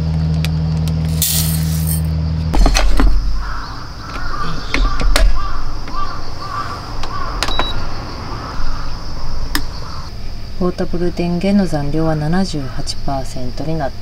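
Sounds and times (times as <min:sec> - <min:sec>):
birds calling: 0:02.6 - 0:11.3.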